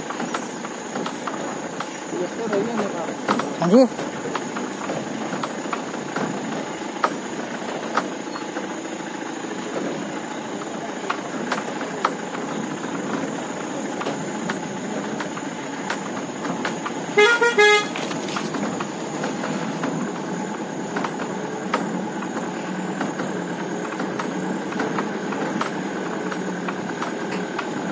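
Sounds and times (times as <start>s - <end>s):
diesel engine running: 0.0s - 27.9s
truck rattling and knocking: 0.0s - 27.9s
short horn toots: 17.2s - 18.4s.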